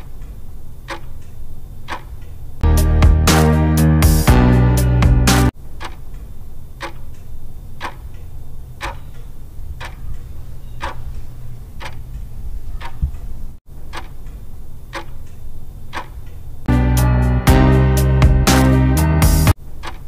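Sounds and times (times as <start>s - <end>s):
clock ticking: 0.0s - 2.2s, 5.7s - 16.4s.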